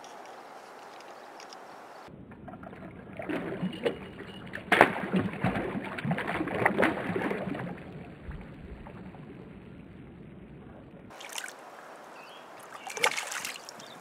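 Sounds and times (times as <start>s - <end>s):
fish splashing in water: 2.4s - 9.4s, 11.1s - 11.7s, 12.6s - 14.0s.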